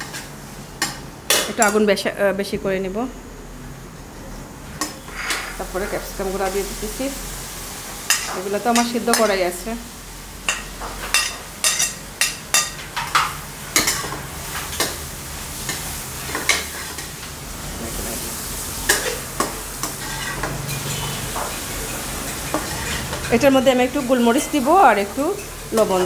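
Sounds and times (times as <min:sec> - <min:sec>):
vegetables sizzling in a metal pan: 0:00.0 - 0:03.1, 0:04.2 - 0:26.0
metal spoon clinking and scraping: 0:18.9 - 0:24.6.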